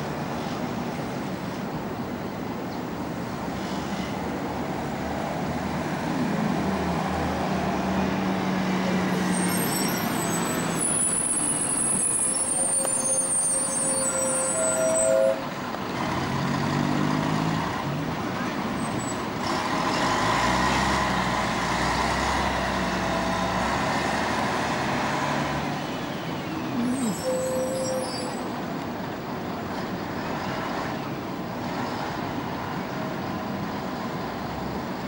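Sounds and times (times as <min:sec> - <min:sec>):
bus engine passing: 0:00.0 - 0:13.7, 0:15.0 - 0:35.0
street traffic: 0:00.0 - 0:35.0
high-pitched squealing: 0:26.4 - 0:28.5.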